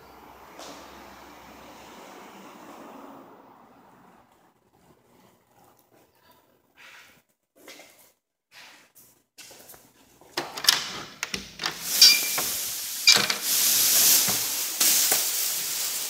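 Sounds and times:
door squeak: 10.6s - 13.6s.

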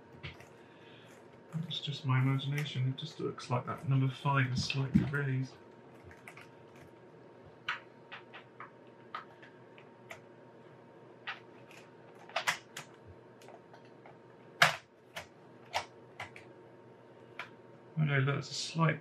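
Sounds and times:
laptop keys clicking: 14.6s - 16.5s.

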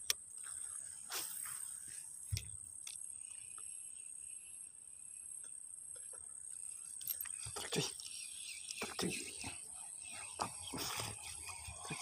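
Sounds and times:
low insect buzz: 0.2s - 12.0s
insects chirring shrilly: 6.0s - 12.0s.

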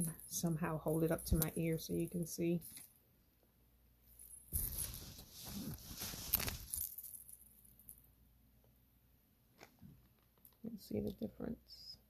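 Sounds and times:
metal bangles jingling: 0.0s - 2.9s, 4.2s - 8.0s.

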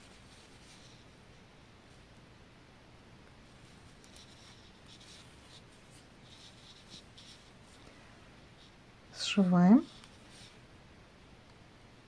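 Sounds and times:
yarn rustling through stitches: 0.0s - 1.1s, 3.5s - 7.8s, 8.5s - 10.6s.

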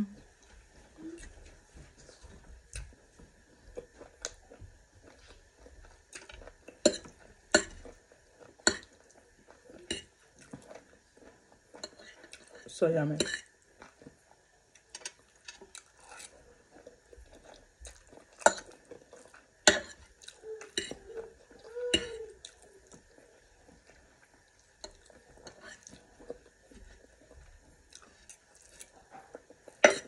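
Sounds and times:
utensils clinking on a plate: 29.2s - 30.0s.

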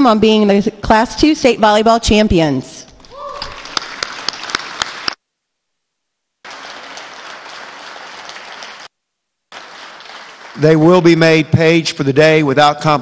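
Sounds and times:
audience applause: 3.5s - 5.2s, 6.4s - 8.9s, 9.5s - 11.2s.

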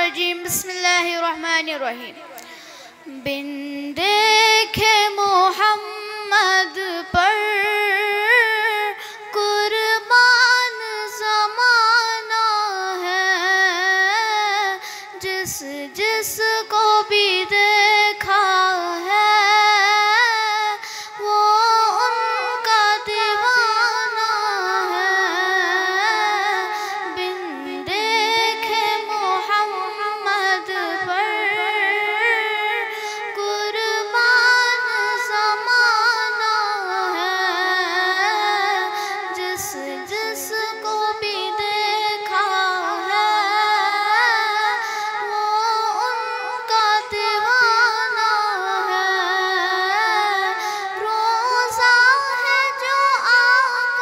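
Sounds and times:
girl singing devotional song: 0.0s - 54.0s.

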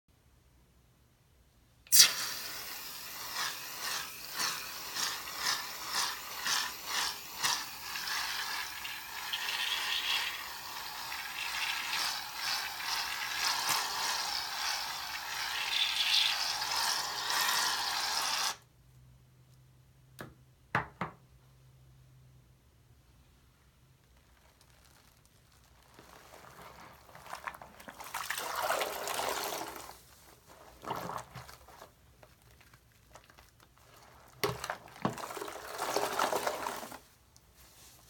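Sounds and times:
aerosol can spraying foam: 1.9s - 18.6s.

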